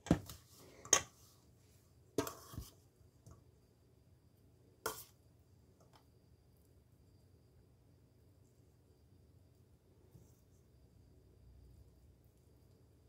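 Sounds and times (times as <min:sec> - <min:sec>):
metal spoon scraping bowl: 0:02.2 - 0:02.7.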